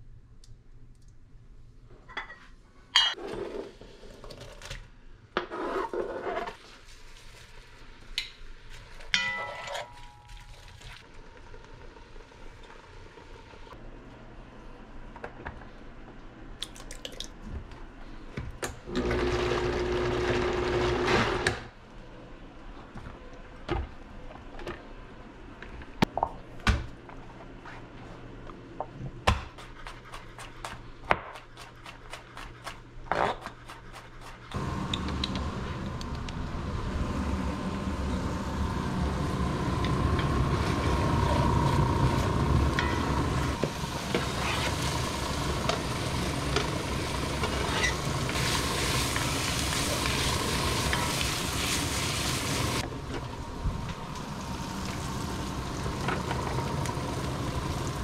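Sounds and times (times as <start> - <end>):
onion sizzling in a pot: 37.2 - 58.0.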